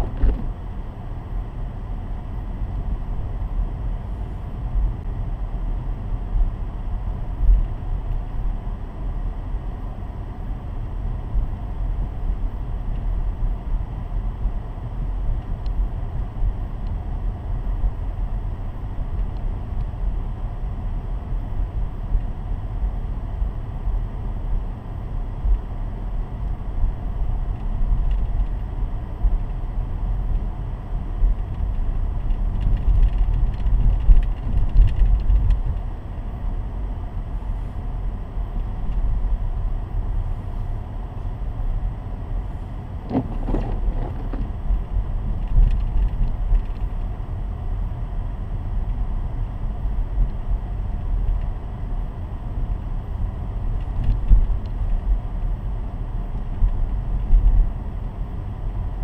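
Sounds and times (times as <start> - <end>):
car engine rumble: 0.0 - 59.0
tyres on road: 42.6 - 44.8.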